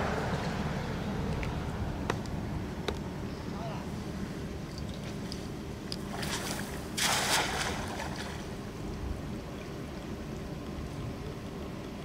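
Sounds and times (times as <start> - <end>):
cast net splashing on water: 6.0 - 8.6.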